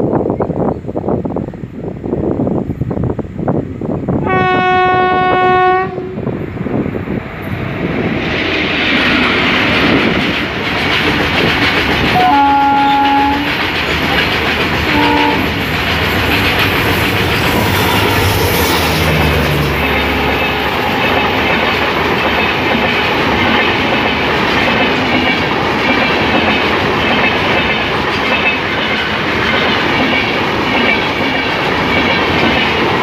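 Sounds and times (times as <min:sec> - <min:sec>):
locomotive engine and wheels rumble: 0:00.0 - 0:33.0
train horn blasts: 0:04.2 - 0:06.3, 0:12.1 - 0:13.6, 0:14.9 - 0:15.6, 0:17.5 - 0:21.6
wheels clattering over rail joints: 0:08.8 - 0:33.0.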